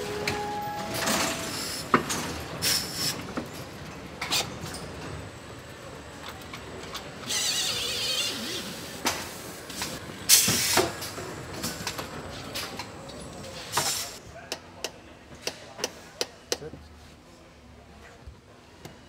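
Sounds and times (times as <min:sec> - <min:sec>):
pneumatic tool air hisses: 0:10.3 - 0:10.9.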